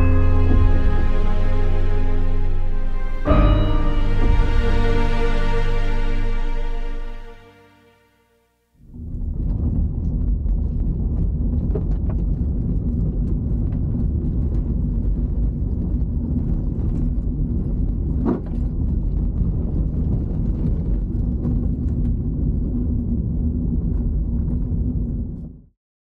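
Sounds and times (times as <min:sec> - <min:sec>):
tyre and road noise in car cabin: 0:09.4 - 0:25.2.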